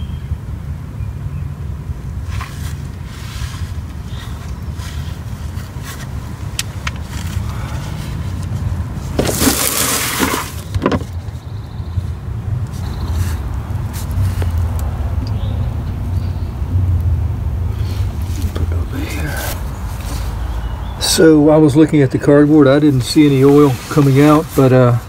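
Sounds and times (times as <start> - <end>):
steady low rumble: 0.2 - 9.2, 10.6 - 25.0
plastic pan scraping over leaves: 2.3 - 6.2, 7.0 - 11.2, 22.5 - 25.0.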